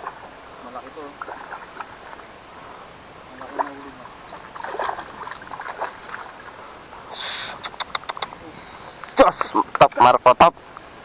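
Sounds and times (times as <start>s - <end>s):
fish splashing at water surface: 0.9s - 2.3s, 3.3s - 7.8s.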